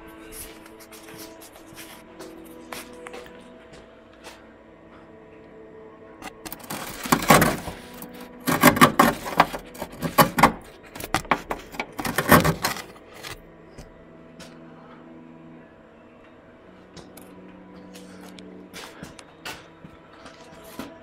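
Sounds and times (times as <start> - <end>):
metal rod scraping rusted steel: 6.4 - 13.4.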